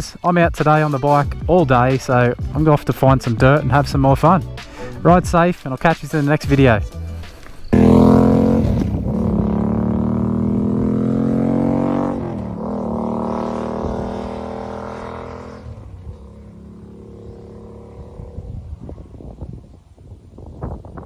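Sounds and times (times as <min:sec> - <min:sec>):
motorcycle engine accelerating: 0:07.6 - 0:20.8.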